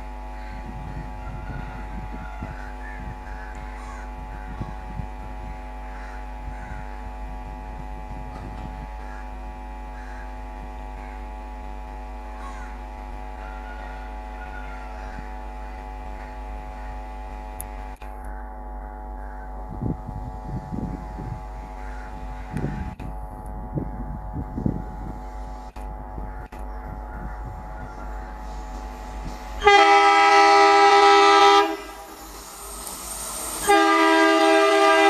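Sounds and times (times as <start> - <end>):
diesel locomotive engine drone: 0.0 - 35.0
crows cawing: 0.4 - 4.8, 5.8 - 7.2, 9.0 - 11.3, 12.3 - 17.1, 18.3 - 19.6, 21.7 - 23.0, 26.2 - 29.2.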